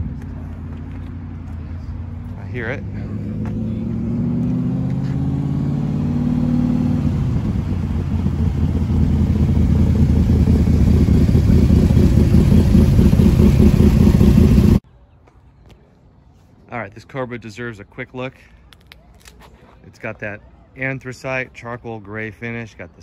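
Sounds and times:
sports car engine rumbling: 0:00.0 - 0:14.8.

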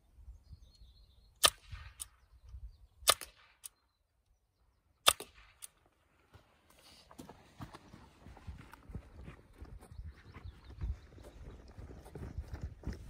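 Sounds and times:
air rifle shots: 0:03.0 - 0:03.7, 0:05.0 - 0:05.8.

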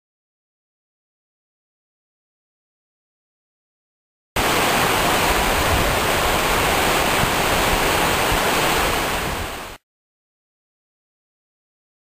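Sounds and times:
waterfall rushing over rocks: 0:04.4 - 0:09.8.

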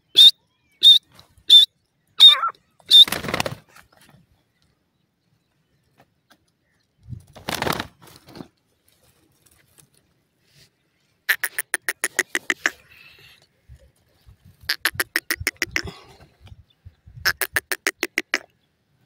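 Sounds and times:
bird giving short sharp calls: 0:00.1 - 0:03.4, 0:11.3 - 0:13.2, 0:14.6 - 0:16.0.

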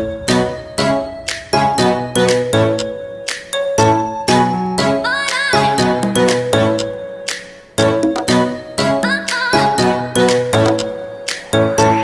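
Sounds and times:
pop music with chiming notes: 0:00.0 - 0:12.0.

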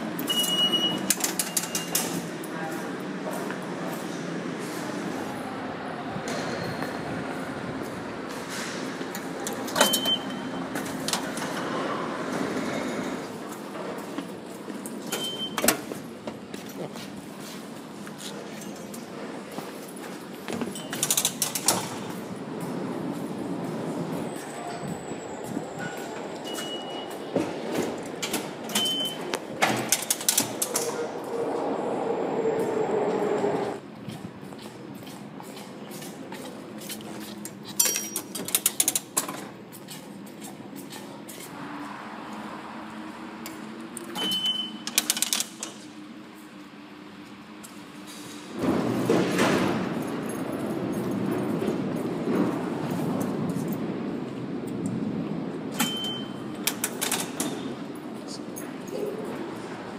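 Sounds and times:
station ambience: 0:00.0 - 0:59.9
turnstile arm clicks: 0:00.2 - 0:02.3, 0:08.8 - 0:16.8, 0:20.4 - 0:31.6, 0:32.6 - 0:41.5, 0:43.4 - 0:45.9, 0:55.7 - 0:59.8
turnstile metal clack: 0:00.2 - 0:02.3, 0:18.4 - 0:31.2, 0:34.1 - 0:41.5, 0:55.7 - 0:59.9
turnstile clunking: 0:24.8 - 0:31.2, 0:55.7 - 0:57.9.

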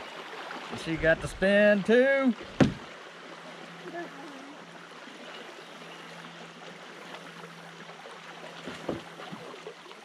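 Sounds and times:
creek water rippling over gravel: 0:00.0 - 0:10.0
sharp knock: 0:02.6 - 0:02.8.

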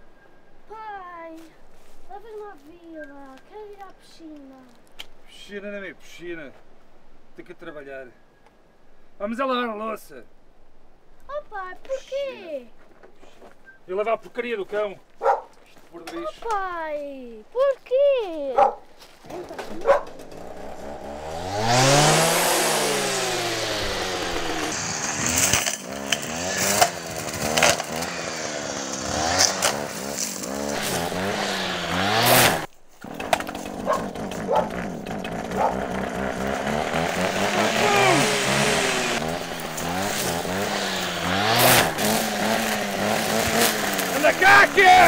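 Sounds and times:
brush cutter engine revving: 0:19.2 - 0:45.0.

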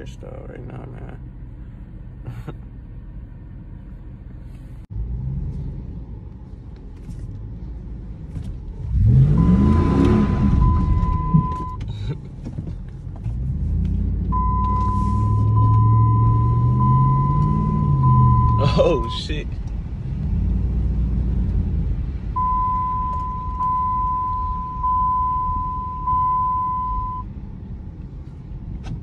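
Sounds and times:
truck engine revving: 0:08.8 - 0:11.8, 0:13.4 - 0:27.2.

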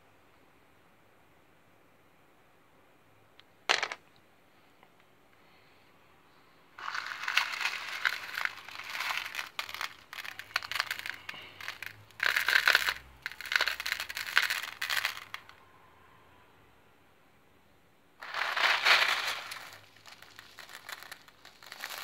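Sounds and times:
stones clattering in plastic tub: 0:03.7 - 0:04.0, 0:06.8 - 0:15.5, 0:18.2 - 0:22.0.

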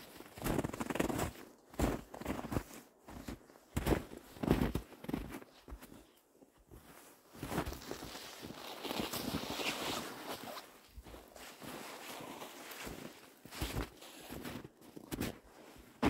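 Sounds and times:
footsteps crunching on snow: 0:00.0 - 0:06.1, 0:06.7 - 0:16.0.

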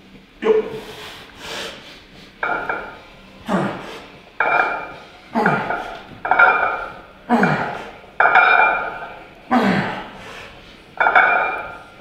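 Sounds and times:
weight plates clinking on bar: 0:02.4 - 0:03.0, 0:04.4 - 0:07.6, 0:08.2 - 0:09.2, 0:11.0 - 0:12.0.

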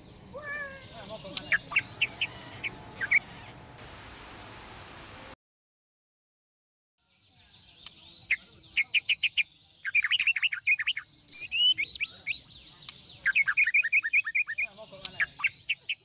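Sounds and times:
parrots chirping and calling: 0:00.1 - 0:03.8.

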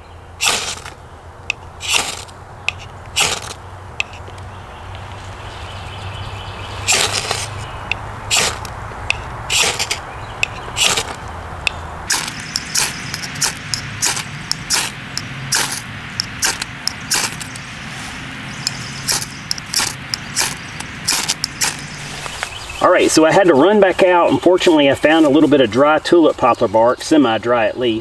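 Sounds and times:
knife scraping ferro rod: 0:00.4 - 0:01.0, 0:01.8 - 0:04.3, 0:06.9 - 0:07.6, 0:08.3 - 0:11.2, 0:12.1 - 0:17.6, 0:18.6 - 0:22.3.

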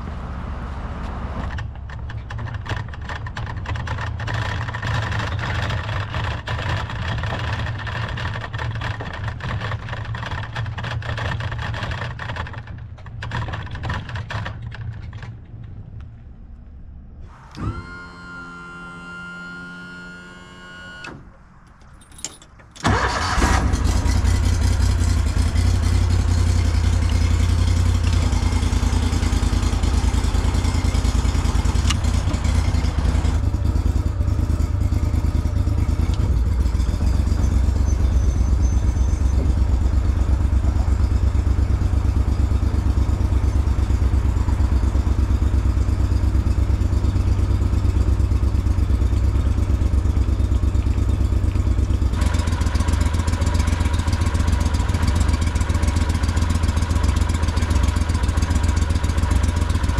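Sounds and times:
trailer rattling and clanking: 0:01.1 - 0:16.0, 0:21.7 - 0:56.7
outboard motor running: 0:23.4 - 0:59.9.

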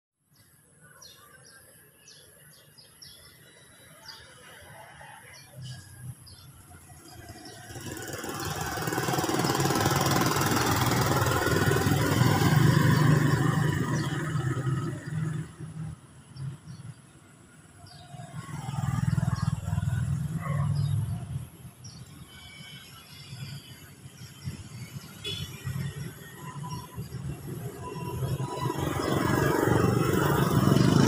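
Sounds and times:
vehicle engine rumble: 0:05.6 - 0:22.4.

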